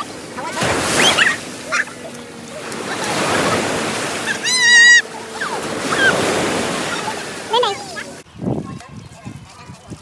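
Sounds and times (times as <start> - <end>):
ocean surf washing onto beach: 0.0 - 8.2
voices: 0.0 - 10.0.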